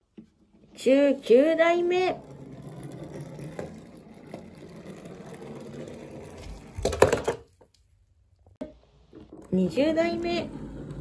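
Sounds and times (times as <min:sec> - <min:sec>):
toy truck rolling on wood: 0:01.7 - 0:07.6.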